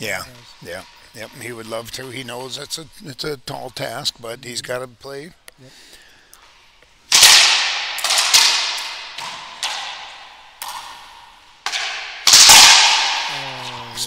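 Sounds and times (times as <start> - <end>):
racquetball cracking off racquets: 6.4 - 14.0.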